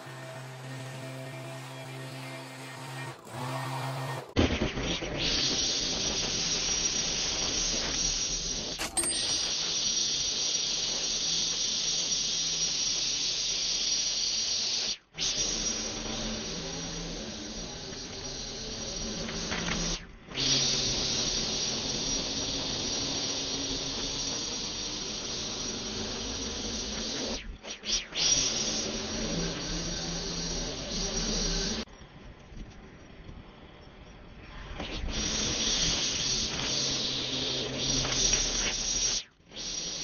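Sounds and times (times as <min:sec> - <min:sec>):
string trimmer whining: 0:00.0 - 0:04.4.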